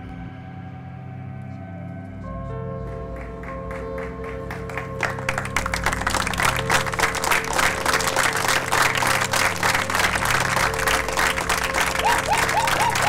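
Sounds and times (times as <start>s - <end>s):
background music: 0.0s - 13.0s
audience applauding: 3.1s - 13.0s
whistle-like notes: 12.0s - 13.0s.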